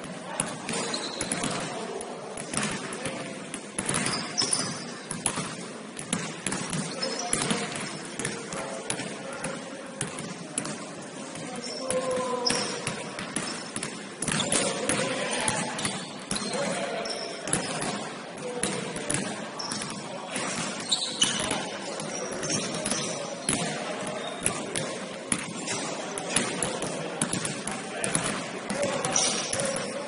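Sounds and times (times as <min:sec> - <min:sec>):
basketball bouncing on court: 0:00.4 - 0:01.8, 0:02.4 - 0:10.8, 0:11.4 - 0:29.9
sneaker squeaks: 0:00.4 - 0:01.8, 0:03.8 - 0:05.4, 0:06.4 - 0:08.4, 0:11.4 - 0:14.7, 0:15.6 - 0:18.0, 0:19.5 - 0:24.6, 0:28.7 - 0:30.0.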